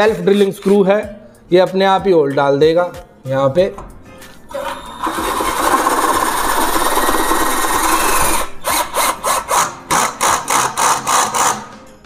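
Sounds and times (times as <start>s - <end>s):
drill clutch clicking: 4.5s - 11.6s
cordless drill driving a screw: 4.5s - 11.7s.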